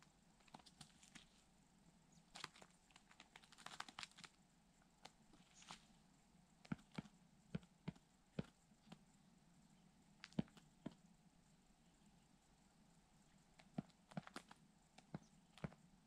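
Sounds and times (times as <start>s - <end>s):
bird pecking and tearing meat: 2.3s - 4.4s.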